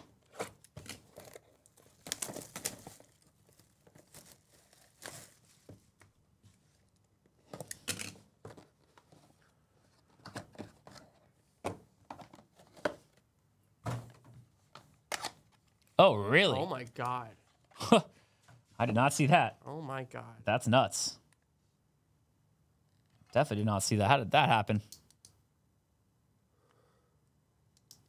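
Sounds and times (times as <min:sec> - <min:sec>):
plastic wrap crinkling and tearing: 0:00.8 - 0:05.6.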